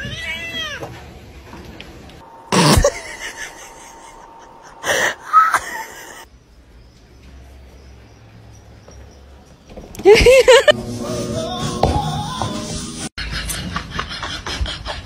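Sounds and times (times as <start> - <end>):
cat meowing: 0.0 - 0.9.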